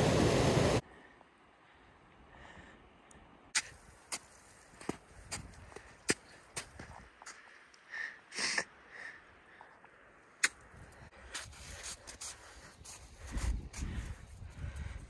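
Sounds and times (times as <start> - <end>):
person breathing hard: 0.8 - 3.0, 7.2 - 10.1, 10.8 - 15.0
boots crunching into icy snow: 3.6 - 7.0, 11.3 - 13.8.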